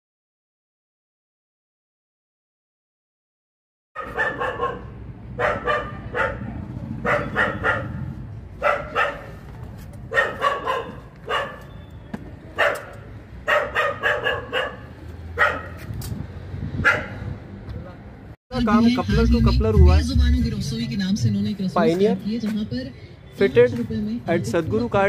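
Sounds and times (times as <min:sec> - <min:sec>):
dog barking: 0:04.0 - 0:09.4, 0:10.1 - 0:11.7, 0:12.6 - 0:15.8, 0:16.8 - 0:17.2.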